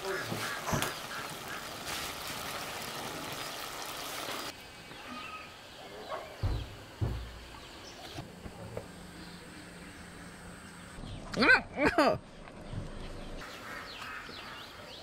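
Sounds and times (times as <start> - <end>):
pot simmering hiss: 0.0 - 5.8
faint bird chirp: 4.8 - 8.2
dull thumps: 6.4 - 7.7.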